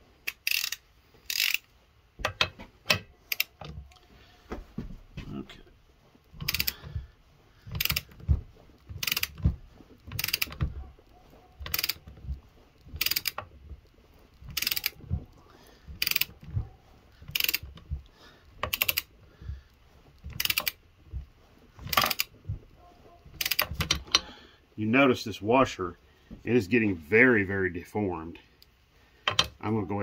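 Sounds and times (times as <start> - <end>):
ratchet clicking: 0.2 - 3.8, 6.3 - 6.9, 7.7 - 10.8, 11.6 - 13.6, 14.3 - 15.1, 15.9 - 16.5, 17.2 - 17.9, 18.6 - 19.1, 20.2 - 20.8, 21.9 - 22.3, 23.4 - 24.3.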